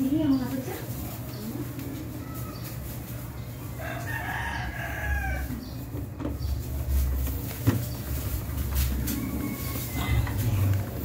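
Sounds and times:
rooster crowing: 3.8s - 5.7s, 9.0s - 10.4s.

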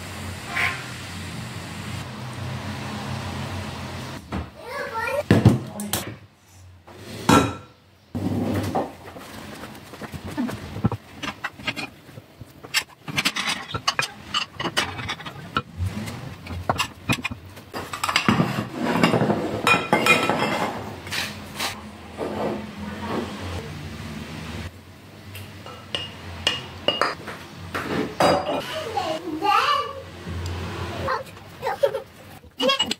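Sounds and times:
porcelain dishes clinking on counter: 16.7s - 20.8s, 25.6s - 27.2s, 28.2s - 28.8s.

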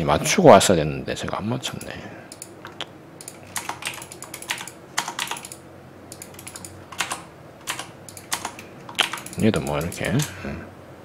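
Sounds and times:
keyboard keys clicking: 2.3s - 10.3s.

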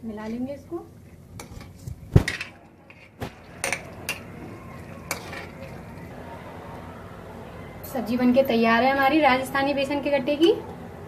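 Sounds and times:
ladle stirring thick curry: 1.2s - 6.2s.

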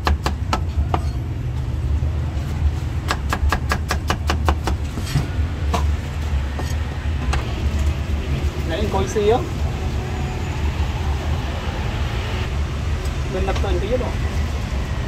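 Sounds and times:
cleaver chopping on wooden block: 3.1s - 4.8s.

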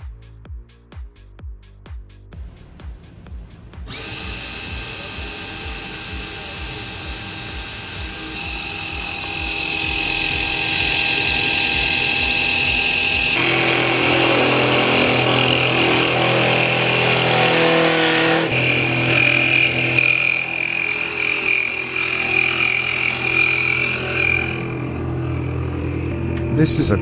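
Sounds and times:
end mill cutting metal: 3.9s - 27.0s
spindle motor whine: 3.9s - 27.0s.

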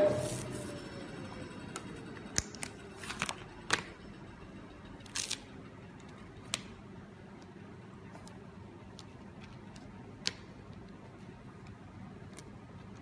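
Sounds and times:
faint machine hum: 0.0s - 13.0s.

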